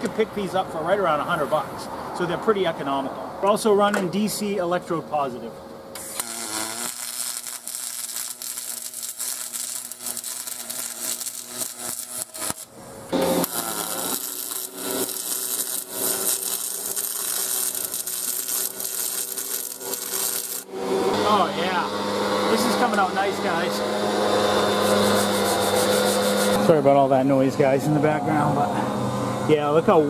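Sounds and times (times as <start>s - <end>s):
welding arc hissing crackle: 6.0s - 20.7s, 24.6s - 26.6s.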